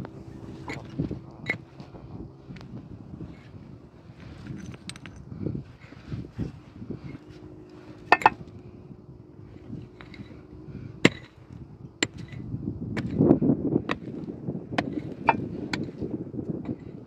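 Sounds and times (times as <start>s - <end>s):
earth and stones crunching: 0.6s - 8.6s, 11.0s - 17.0s
pick striking stony soil: 8.0s - 8.5s, 11.0s - 17.0s.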